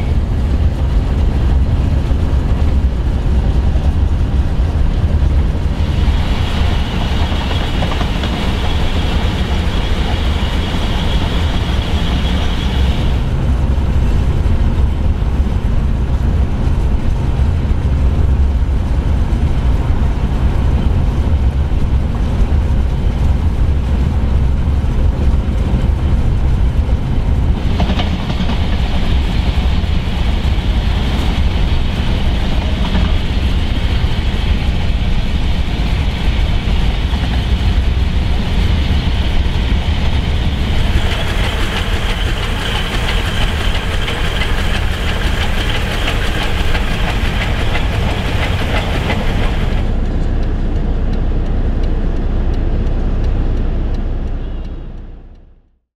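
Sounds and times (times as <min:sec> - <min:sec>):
wheels clacking over rails: 0:00.0 - 0:14.0, 0:24.4 - 0:50.1
steam locomotive rumble: 0:00.0 - 0:55.3.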